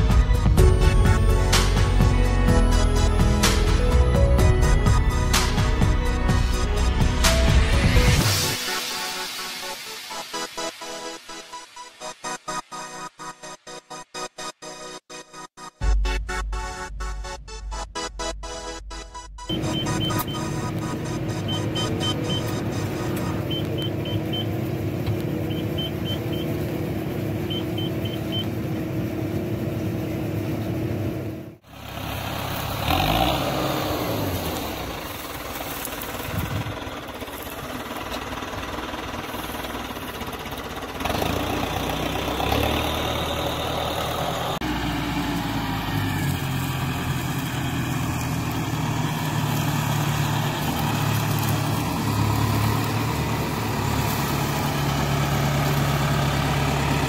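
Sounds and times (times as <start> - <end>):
tractor diesel engine: 0.0 - 13.3, 15.8 - 57.0
short electronic beeps: 19.2 - 24.5, 25.5 - 26.5, 27.5 - 28.5.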